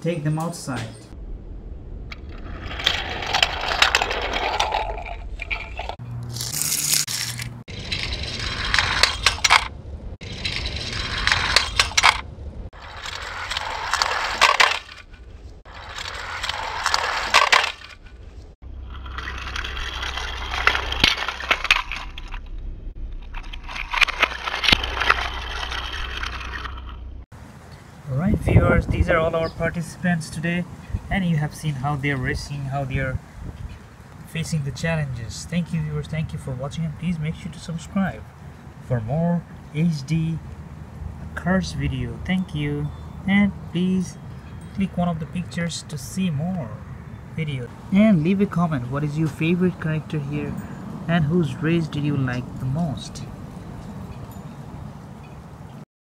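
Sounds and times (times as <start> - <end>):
low rumble: 1.1 - 6.0, 7.6 - 17.3, 17.9 - 27.3
toy cars rolling down plastic track: 2.6 - 6.0, 7.7 - 9.7, 10.3 - 12.2, 12.8 - 15.0, 15.7 - 18.0, 19.0 - 22.0.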